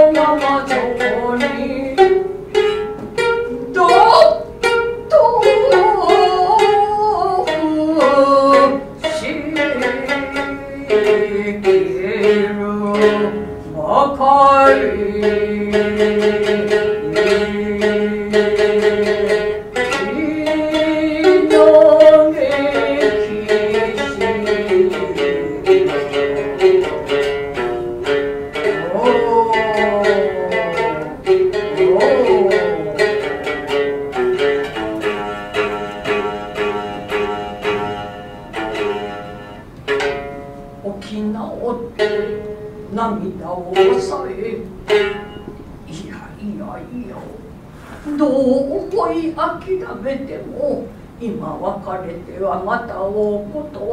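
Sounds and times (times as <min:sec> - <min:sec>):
shamisen plucking: 0:00.0 - 0:53.9
person chanting in held notes: 0:28.6 - 0:33.9.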